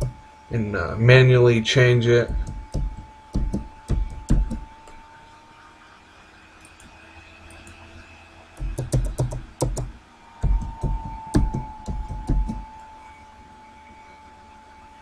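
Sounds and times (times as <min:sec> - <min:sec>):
typing on computer keyboard: 0:08.6 - 0:09.9.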